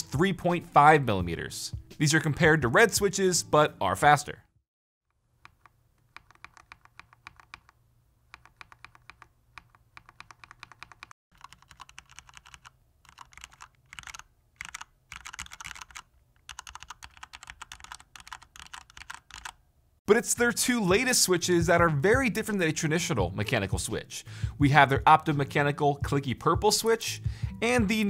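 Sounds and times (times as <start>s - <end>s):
keyboard switch pressed repeatedly: 5.4s - 19.6s
typing on mechanical keyboard: 5.4s - 19.6s.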